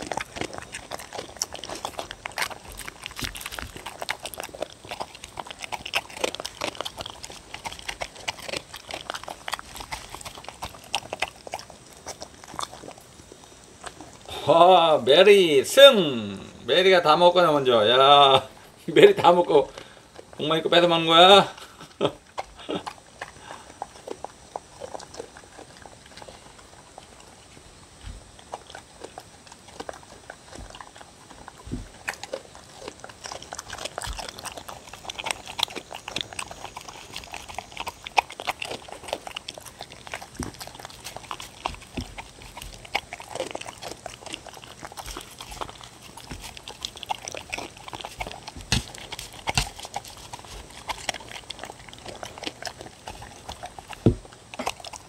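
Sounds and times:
dogs chewing and licking: 0:00.0 - 0:55.0.

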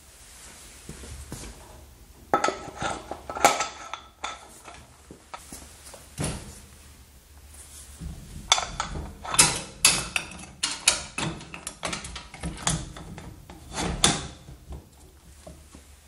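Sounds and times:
metal parts clicking and knocking: 0:08.5 - 0:14.3.

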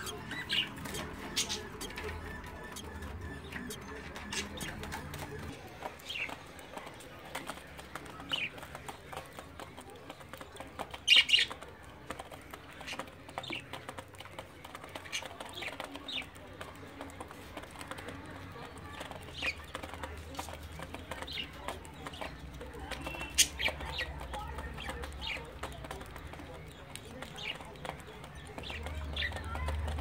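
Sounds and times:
budgerigars chirping: 0:00.0 - 0:06.5.

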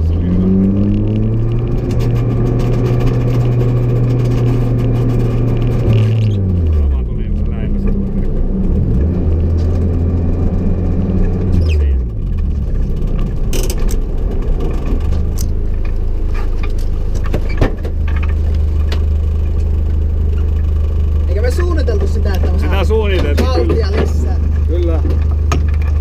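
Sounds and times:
car engine idling: 0:00.0 - 0:26.0
clicks and knocks inside car: 0:12.1 - 0:19.7, 0:22.0 - 0:26.0.

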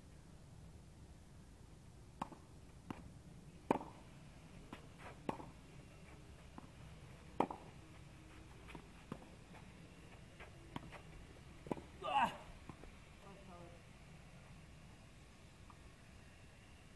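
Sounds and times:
tennis ball bouncing: 0:02.2 - 0:12.0
rackets striking tennis ball: 0:04.7 - 0:07.8, 0:08.6 - 0:12.0.

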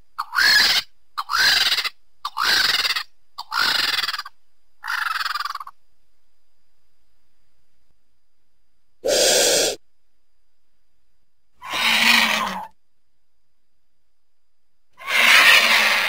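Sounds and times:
raspy creature squeals: 0:09.0 - 0:09.8, 0:11.6 - 0:12.7, 0:15.0 - 0:16.0.

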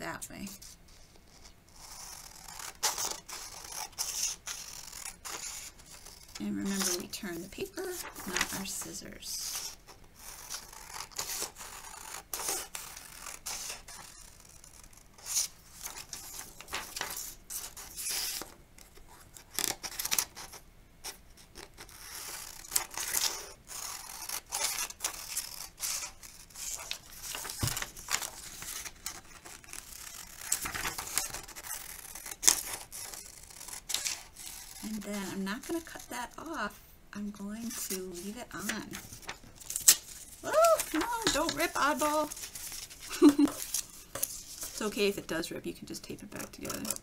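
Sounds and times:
paper rustling: 0:00.9 - 0:36.6, 0:37.6 - 0:45.2, 0:46.0 - 0:47.0
scissors snipping paper: 0:19.4 - 0:36.4, 0:37.6 - 0:45.1, 0:46.0 - 0:47.0.

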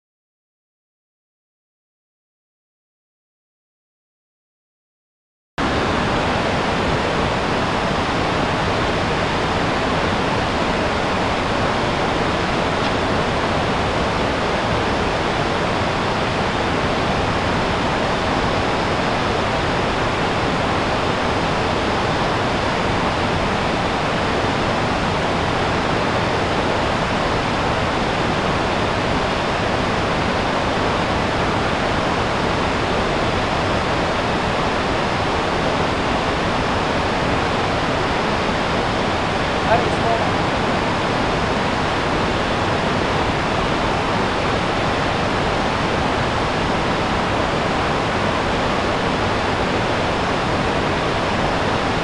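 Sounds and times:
river rapids rushing: 0:05.6 - 0:52.0.

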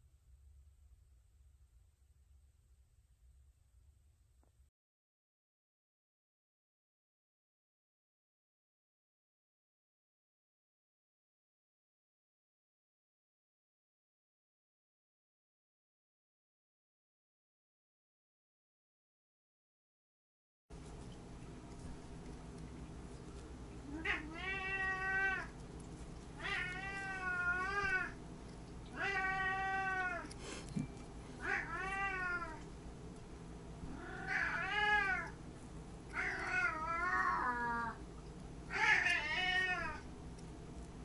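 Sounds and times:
cat meowing: 0:23.9 - 0:25.5, 0:26.4 - 0:28.2, 0:28.9 - 0:30.3, 0:31.4 - 0:32.6, 0:33.9 - 0:35.4, 0:36.1 - 0:38.0, 0:38.7 - 0:40.1.

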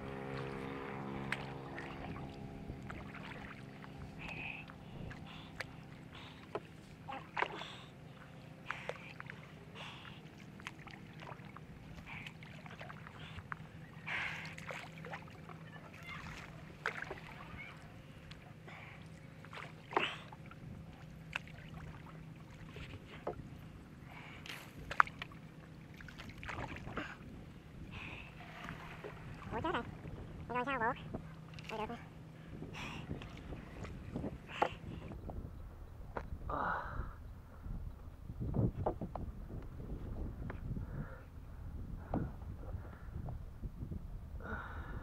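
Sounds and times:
water splashing from paddle: 0:00.0 - 0:32.0
wooden paddle knocking boat: 0:00.0 - 0:36.5, 0:37.5 - 0:40.8
steady low hum: 0:00.0 - 0:45.0.

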